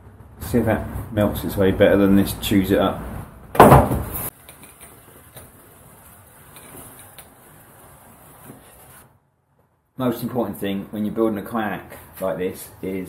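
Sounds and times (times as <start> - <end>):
rustling scrape against foam board: 4.9 - 9.1
hot knife hissing through foam: 5.0 - 9.1.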